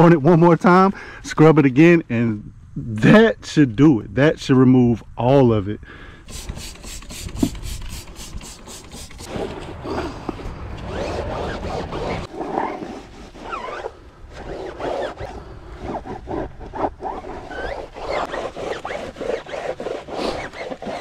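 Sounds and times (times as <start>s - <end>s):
wet sponge scrubbing tire: 6.3s - 21.0s
sponge squeaks: 10.8s - 15.4s, 16.0s - 21.0s.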